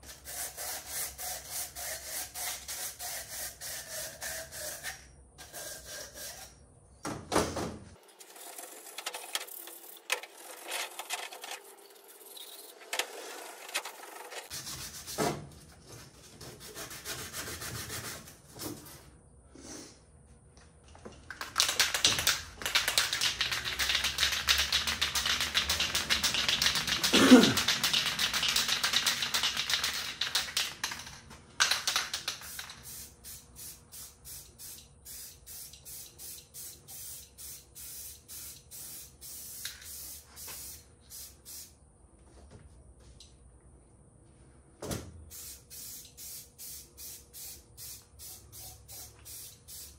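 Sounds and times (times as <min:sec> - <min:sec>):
spray can hissing: 0:21.6 - 0:31.0, 0:31.7 - 0:41.8, 0:45.3 - 0:49.9.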